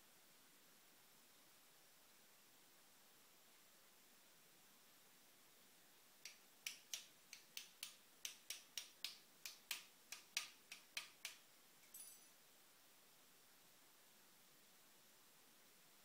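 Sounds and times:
small metallic ring: 11.8s - 12.4s.

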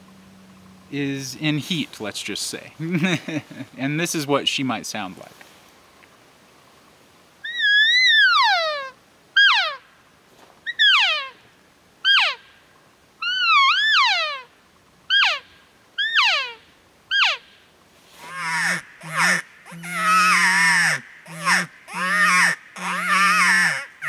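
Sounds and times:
elk call mews: 7.4s - 9.8s, 10.7s - 11.4s, 12.0s - 12.4s, 13.2s - 14.5s, 16.0s - 17.4s, 18.2s - 24.0s.

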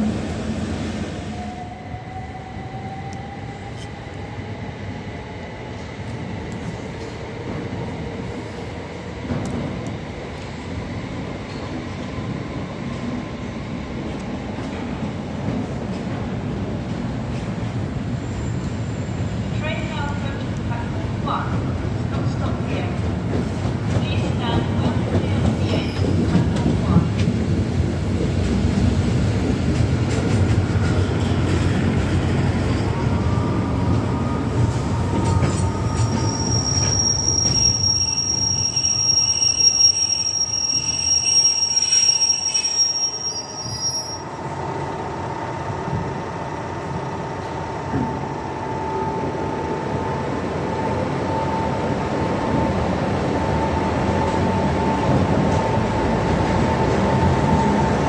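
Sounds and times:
train wheels rumbling and clicking: 9.1s - 10.7s, 13.9s - 42.2s, 52.5s - 58.0s
high-pitched wheel squeal: 35.6s - 44.3s
steady locomotive hum: 43.6s - 58.0s.

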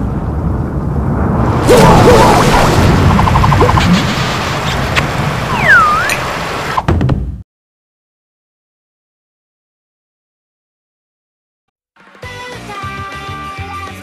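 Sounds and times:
cartoon crashing roar: 1.6s - 3.1s
whistle dipping and rising: 5.5s - 6.3s.

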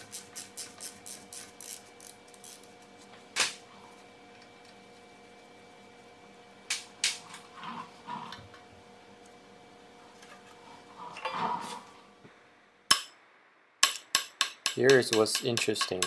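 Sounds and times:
faint steady hum: 0.0s - 16.0s
metal rubbing and scraping: 10.6s - 12.0s.

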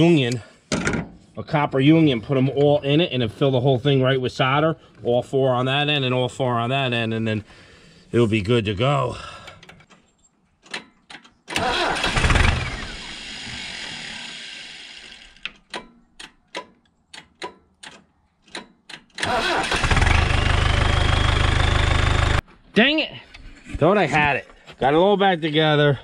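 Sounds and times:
engine cranking with whine: 11.5s - 15.4s, 19.2s - 22.4s.

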